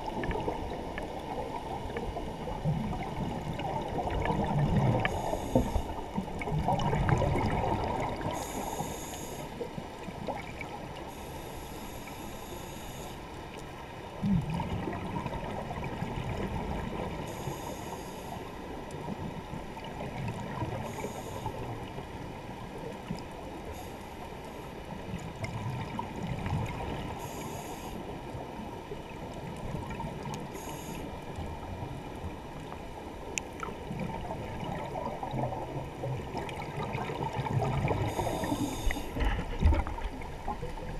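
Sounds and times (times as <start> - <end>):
underwater wash of water: 0.0 - 40.9
short underwater hiss: 5.1 - 6.0, 8.2 - 9.6, 11.1 - 13.2, 17.2 - 18.4, 20.8 - 21.6, 27.2 - 28.0, 30.6 - 31.1, 38.0 - 39.5
underwater thump: 39.1 - 40.2.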